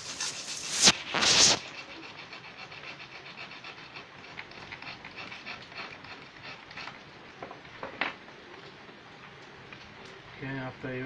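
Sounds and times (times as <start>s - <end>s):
metal file rasping on blade: 0.0s - 7.0s.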